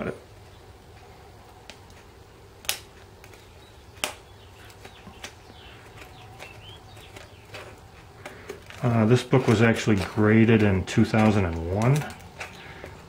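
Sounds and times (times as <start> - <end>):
faint birds chirping: 0.0 - 13.0
scissors snipping plastic: 2.6 - 13.0.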